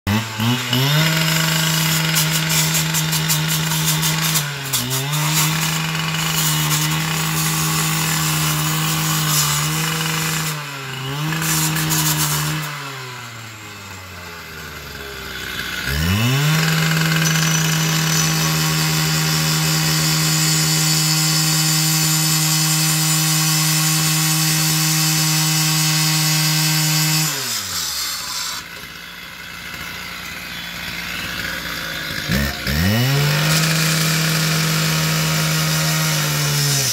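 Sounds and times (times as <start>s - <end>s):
cut-off saw engine revving: 0.1s - 36.9s
saw wheel grinding through fence: 0.1s - 36.9s.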